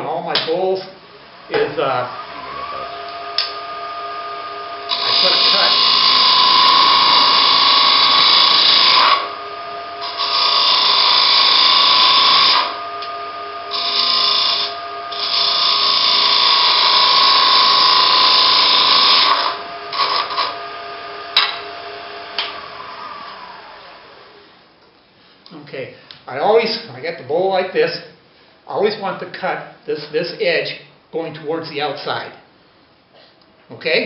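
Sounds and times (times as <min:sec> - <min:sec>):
lathe humming: 0:01.1 - 0:24.6
gouge cutting wood on lathe: 0:02.1 - 0:24.2.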